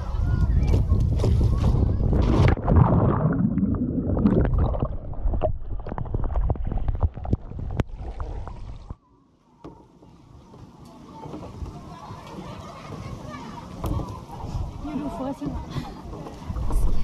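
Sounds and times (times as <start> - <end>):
water sloshing and gurgling: 0.7 - 9.0.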